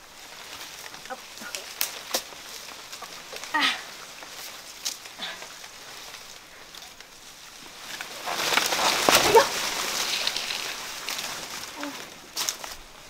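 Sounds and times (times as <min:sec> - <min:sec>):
banana plant leaves rustling: 0:00.0 - 0:13.0
stalk cracking: 0:00.0 - 0:13.0.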